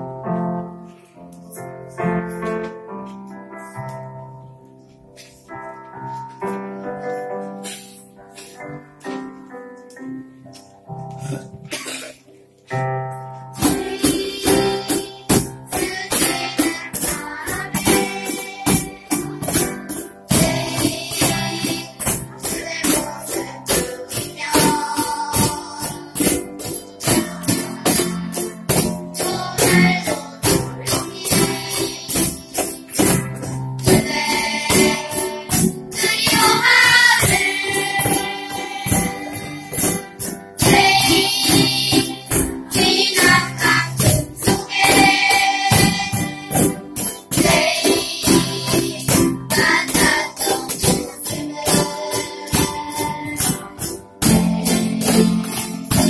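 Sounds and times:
keyboard: 0.0 - 56.0
small guitars: 0.0 - 56.0
cajon beat: 10.5 - 56.0
children singing together: 13.6 - 56.0
jingling hand percussion: 13.6 - 56.0.

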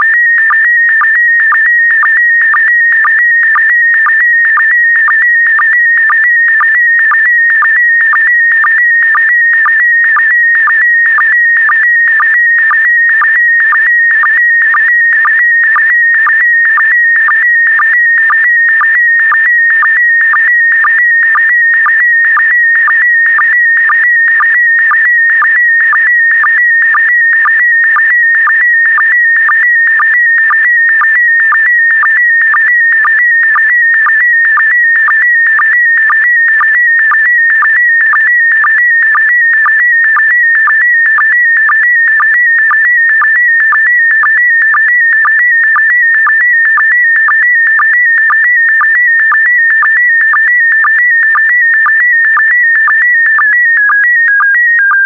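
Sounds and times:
short lower-pitched blips: 54.2 - 55.0.

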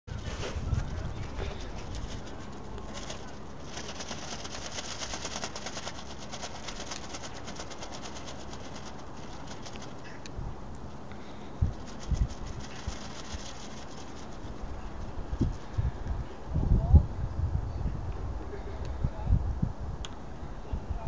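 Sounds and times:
wind noise on microphone: 0.0 - 21.0.

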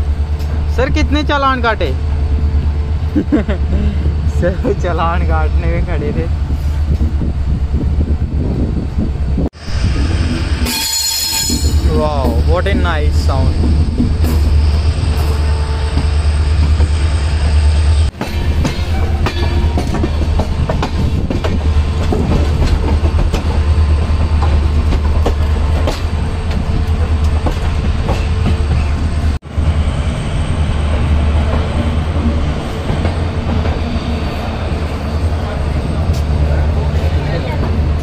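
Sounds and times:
train rumbling: 0.0 - 38.0.

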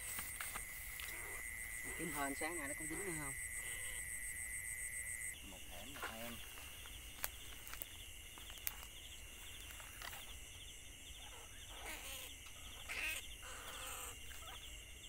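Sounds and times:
insects chirping: 0.0 - 15.0
rats squealing: 11.2 - 14.7.

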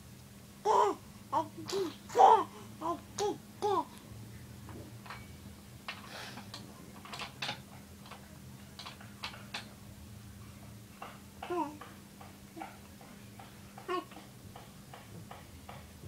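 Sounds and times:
baby vocalizing: 0.6 - 4.0
hands tapping metal bars: 11.0 - 16.0.

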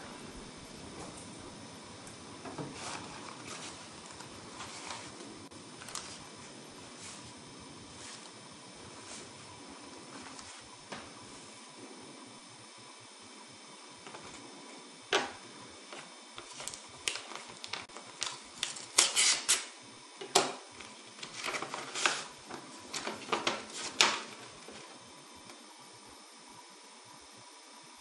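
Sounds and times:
paper crinkling: 2.6 - 8.3, 15.2 - 19.7, 20.3 - 24.9.

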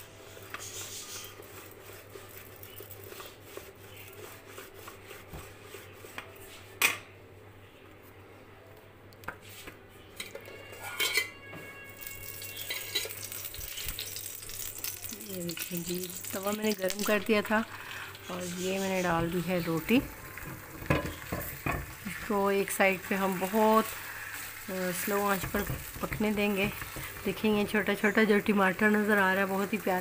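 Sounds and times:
rolling pin rubbing on dough: 0.2 - 6.8, 18.3 - 20.1.

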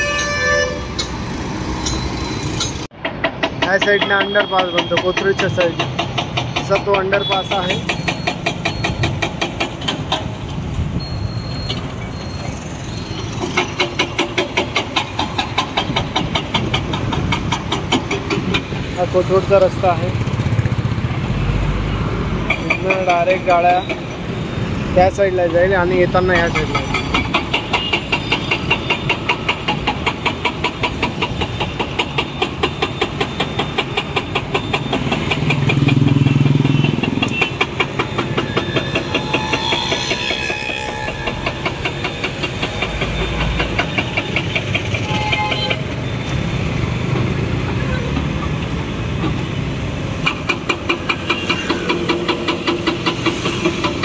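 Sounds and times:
motorcycles and cars passing: 15.9 - 27.1, 34.6 - 38.6, 39.3 - 54.0.

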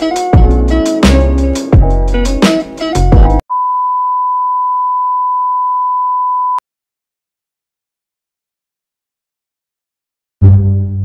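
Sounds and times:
bass-heavy intro music: 0.0 - 3.4, 10.4 - 11.0.

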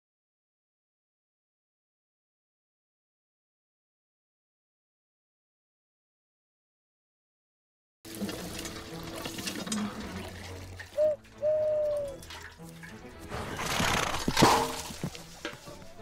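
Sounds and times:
person hooting owl call: 11.0 - 12.2.

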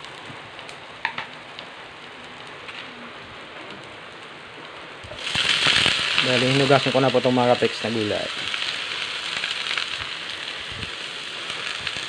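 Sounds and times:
vegetables sizzling in oil: 5.0 - 12.0.

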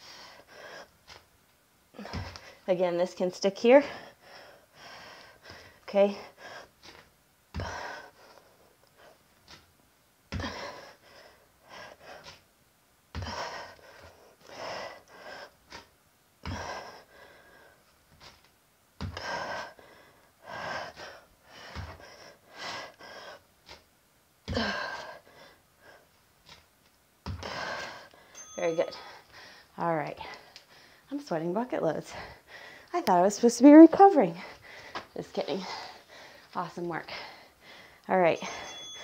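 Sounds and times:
woman breathing hard: 0.0 - 1.2, 3.8 - 9.6, 10.3 - 12.4, 13.1 - 18.3, 19.0 - 23.8, 24.5 - 26.2, 27.3 - 31.1, 32.1 - 32.9, 34.4 - 39.0.

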